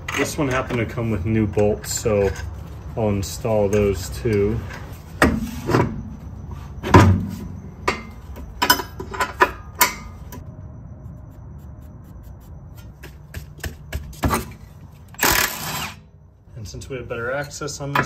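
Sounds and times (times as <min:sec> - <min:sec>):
metal clinks and knocks: 0:07.8 - 0:10.4.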